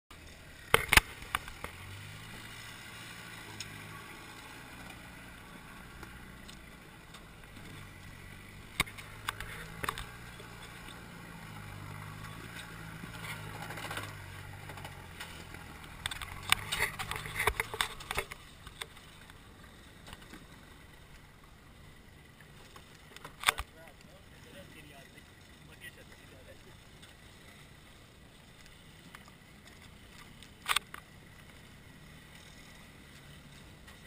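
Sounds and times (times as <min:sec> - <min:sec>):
engine running at low revs: 0:00.1 - 0:34.0.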